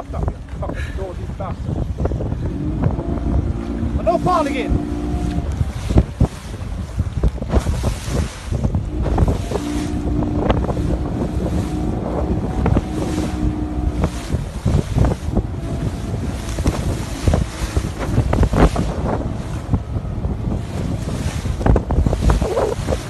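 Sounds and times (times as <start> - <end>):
waves slapping against hull: 0.0 - 23.0
wind buffeting microphone: 0.0 - 23.0.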